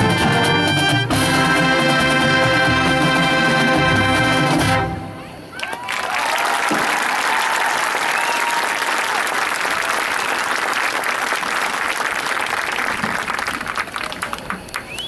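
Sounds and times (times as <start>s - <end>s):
crowd cheering: 5.2s - 15.0s
crowd applauding: 5.5s - 15.0s.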